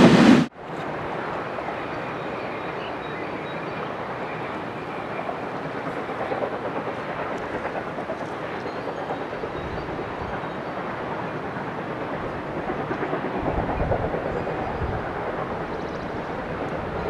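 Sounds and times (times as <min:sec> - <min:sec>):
rumble of train coaches: 0:00.0 - 0:17.0.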